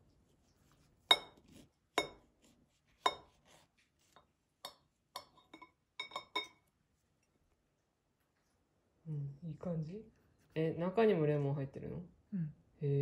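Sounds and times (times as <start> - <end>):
knife clinking on ceramic plate: 1.1 - 2.3, 3.0 - 3.4, 4.6 - 6.7.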